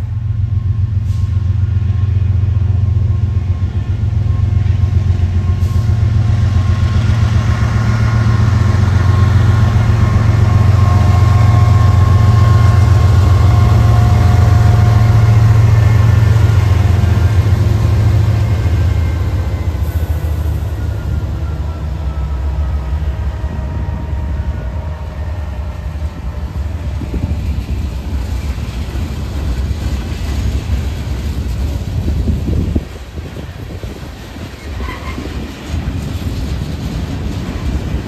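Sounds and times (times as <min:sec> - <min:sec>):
diesel locomotive engine rumble: 0:00.0 - 0:38.0
locomotive whine: 0:00.0 - 0:38.0.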